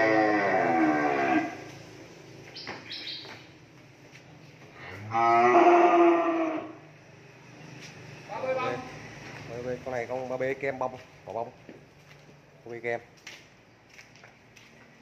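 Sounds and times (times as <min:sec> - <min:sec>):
cattle mooing: 0:00.0 - 0:01.7, 0:04.8 - 0:06.8.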